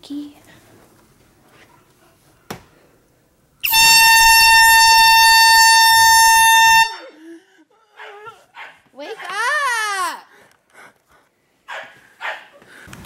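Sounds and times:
air horn blast: 3.6 - 7.2.

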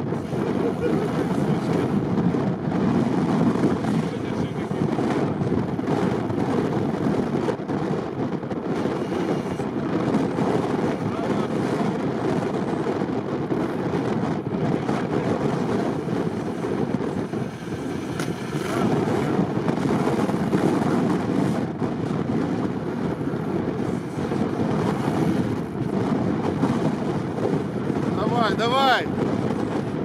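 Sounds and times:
wind on microphone: 0.0 - 30.0
wheels spinning in mud: 13.5 - 28.1.

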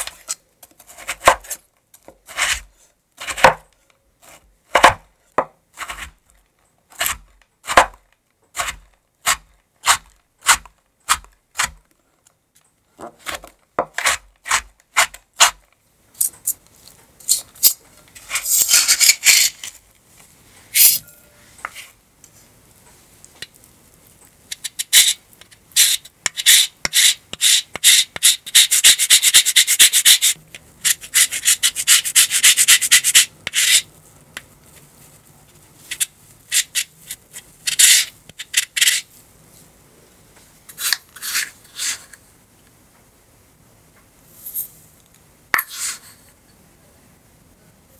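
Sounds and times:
lemon scraped over rasp grater: 2.2 - 3.4, 5.7 - 6.2
knife chopping on wooden board: 4.8 - 6.1, 7.0 - 8.0, 8.6 - 11.8.

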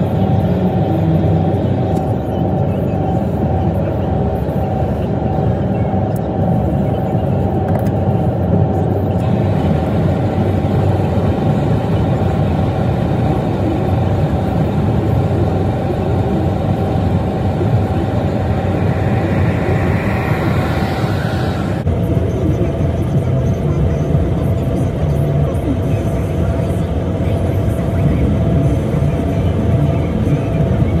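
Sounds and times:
road vehicle rumble: 0.0 - 22.2.

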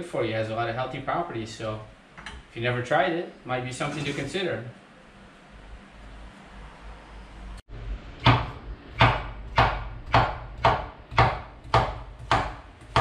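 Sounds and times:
knife chopping on wooden board: 8.2 - 13.0.

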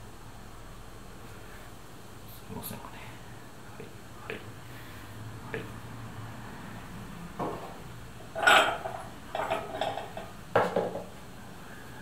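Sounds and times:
ceramic knocks and clinks: 8.4 - 11.1.

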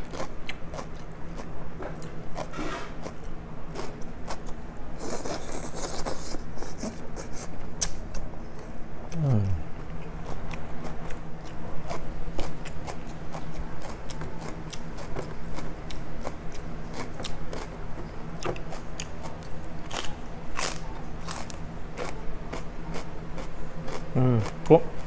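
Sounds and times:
crunching celery: 18.4 - 25.0.

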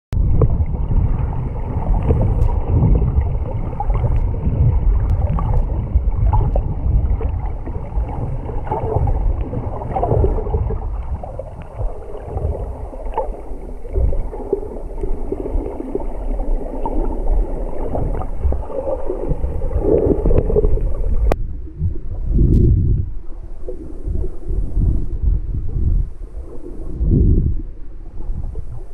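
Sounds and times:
water sloshing underwater: 0.1 - 28.9.

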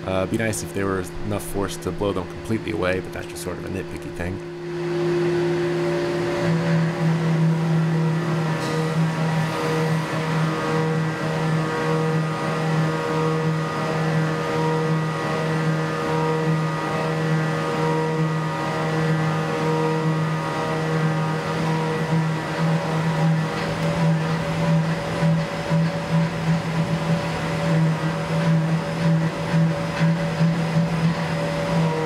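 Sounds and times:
milling machine spindle whine: 0.0 - 32.0.

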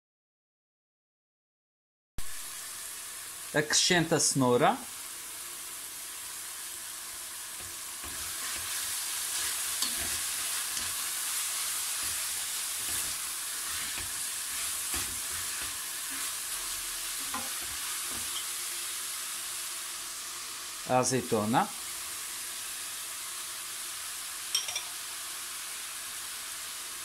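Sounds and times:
food sizzling in a pot: 2.2 - 27.0
wooden spoon scraping pot: 11.8 - 18.4.

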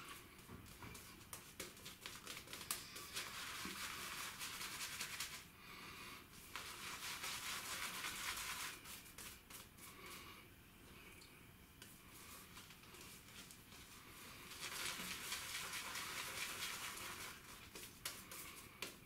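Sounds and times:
shaving brush swishing through lather: 2.8 - 5.4, 6.4 - 10.0, 12.2 - 18.9.

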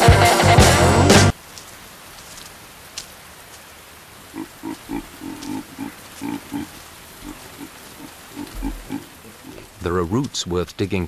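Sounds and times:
rain falling: 0.0 - 11.0
baboons grunting: 4.2 - 10.1.

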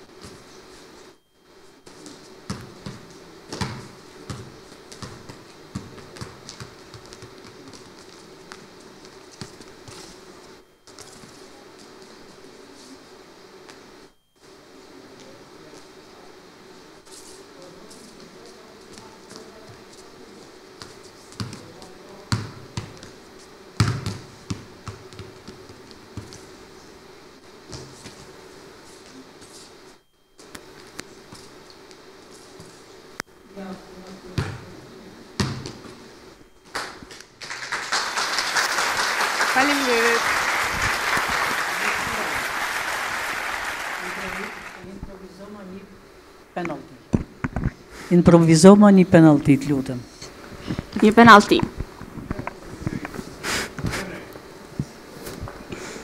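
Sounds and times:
faint steady hum: 0.0 - 56.0
football bouncing on hard floor: 35.4 - 35.8.

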